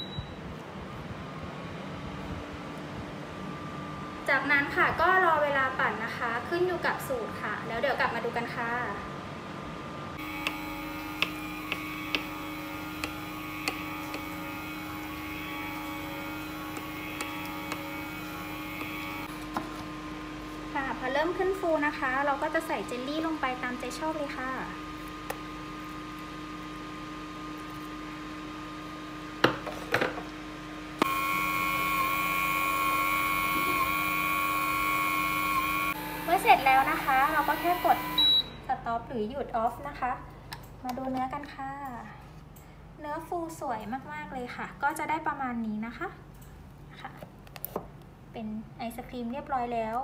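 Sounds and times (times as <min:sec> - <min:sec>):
ice cream maker motor humming: 0:10.2 - 0:38.4.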